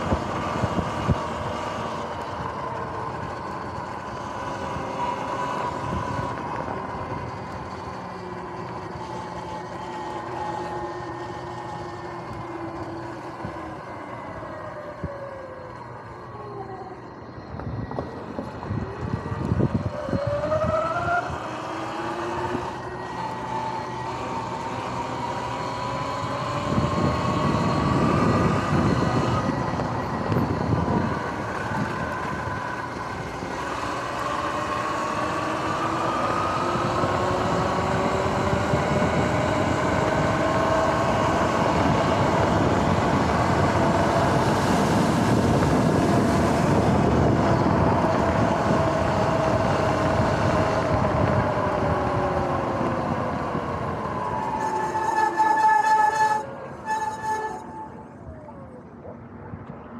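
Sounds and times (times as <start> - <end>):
electric motorbike motor whining: 0.0 - 58.9
rushing air and tyres: 0.0 - 59.9.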